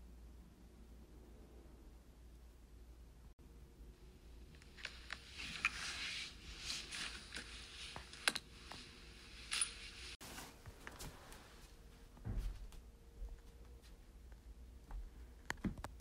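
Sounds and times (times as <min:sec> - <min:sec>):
rustling handling noise: 0:04.4 - 0:14.4
soft low thump: 0:12.2 - 0:12.8.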